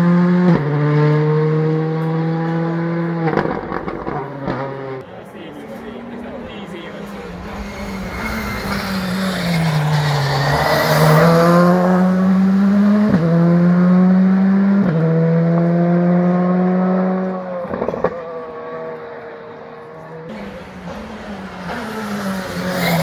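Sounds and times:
rally car engine accelerating: 0:00.0 - 0:05.1, 0:05.7 - 0:23.0
exhaust crackle and pop: 0:03.3 - 0:04.7.

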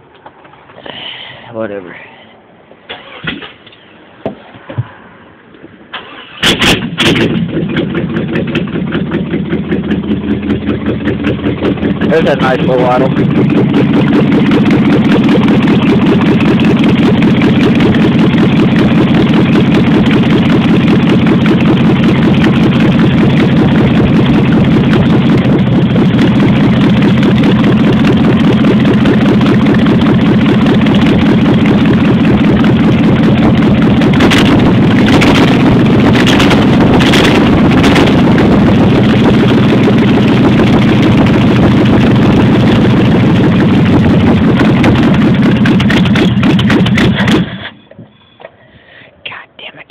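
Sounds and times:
engine idling with uneven lope: 0:00.0 - 0:48.8.

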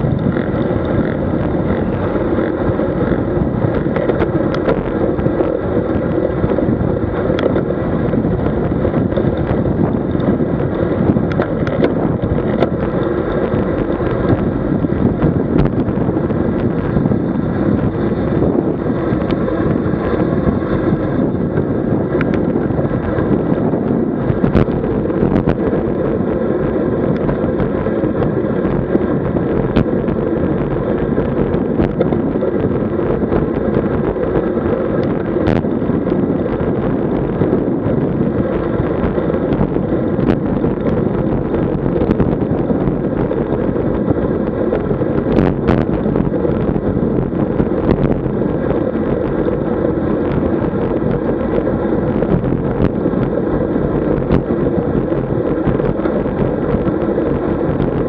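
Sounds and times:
low road rumble: 0:00.0 - 0:58.0
wind rushing over microphone: 0:00.0 - 0:58.0
faint clicks and knocks: 0:00.1 - 0:05.6, 0:08.9 - 0:15.9.

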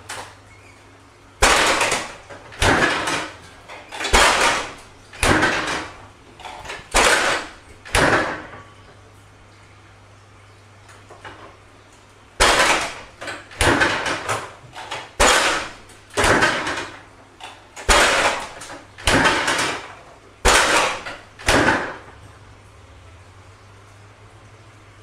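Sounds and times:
faint steady hum: 0:00.0 - 0:25.0
refrigerator door banging: 0:01.4 - 0:08.7, 0:12.4 - 0:17.1, 0:17.8 - 0:22.2.

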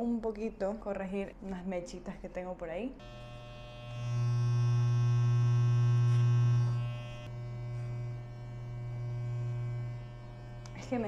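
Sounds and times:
electric hair clipper buzzing: 0:03.0 - 0:11.0.

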